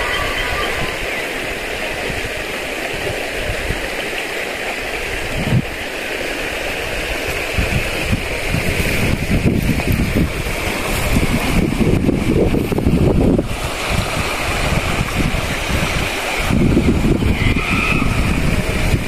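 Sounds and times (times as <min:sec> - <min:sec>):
wind buffeting microphone: 0:00.0 - 0:04.0, 0:04.8 - 0:19.0
stream water rushing: 0:00.0 - 0:19.0.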